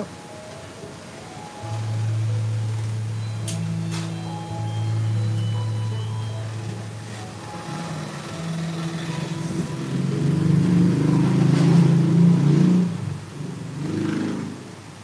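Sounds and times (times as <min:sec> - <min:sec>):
motor engine humming: 0:01.6 - 0:13.0.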